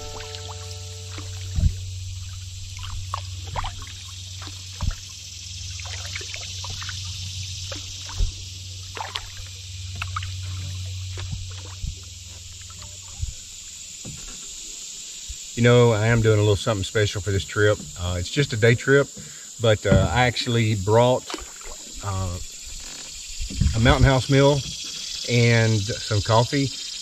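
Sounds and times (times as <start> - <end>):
paddle knocking against canoe: 0.0 - 5.1, 7.6 - 14.6, 19.1 - 20.4
water splashing off paddle: 0.0 - 14.4, 19.2 - 20.4, 21.1 - 22.2.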